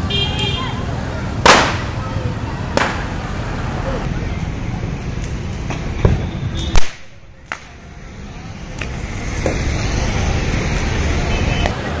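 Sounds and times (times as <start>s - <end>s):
street traffic rumble: 0.0s - 12.0s
firecrackers cracking and popping: 1.4s - 2.0s, 2.7s - 3.2s, 5.2s - 7.8s
loud firecracker bang: 1.4s - 2.0s, 2.8s - 3.1s.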